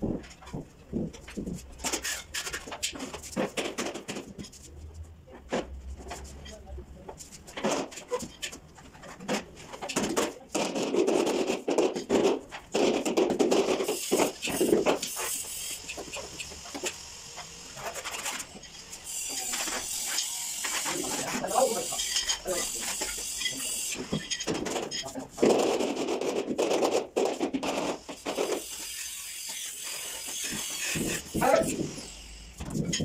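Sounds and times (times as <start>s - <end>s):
trowel scraping tile: 1.8s - 4.5s, 17.8s - 31.9s.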